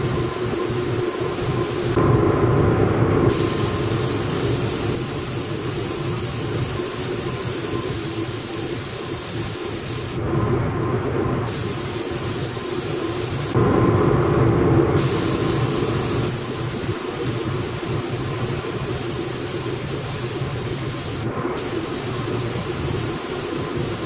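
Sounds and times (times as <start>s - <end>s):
spray gun air hiss: 0.0s - 2.0s, 3.3s - 10.2s, 11.5s - 13.6s, 15.0s - 24.0s
booth fan humming: 0.0s - 24.0s.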